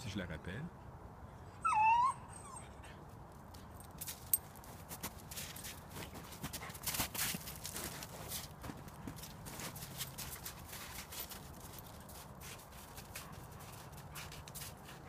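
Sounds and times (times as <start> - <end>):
footsteps crunching in snow and leaves: 4.0 - 15.0.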